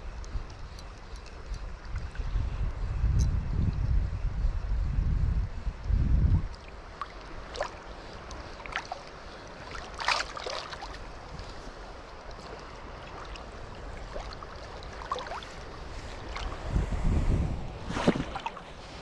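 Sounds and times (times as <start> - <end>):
wind gust on microphone: 1.7 - 7.4, 15.0 - 19.0
water lapping and splashing: 6.4 - 19.0.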